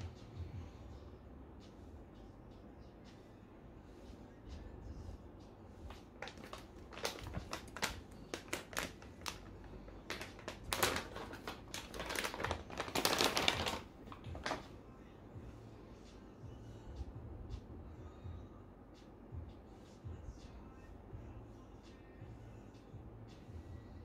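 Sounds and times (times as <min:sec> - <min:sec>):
crinkling plastic packaging bag: 0:06.2 - 0:14.7.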